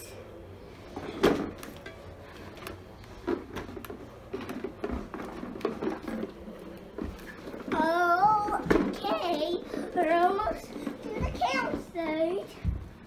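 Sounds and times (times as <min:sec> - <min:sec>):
plastic toy rumbling and rattling: 0:02.5 - 0:12.6.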